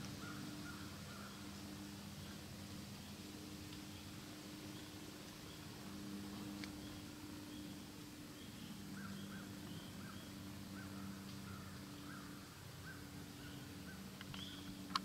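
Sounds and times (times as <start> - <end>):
faint low hum: 0.0 - 15.0
bird chirping: 6.7 - 14.9.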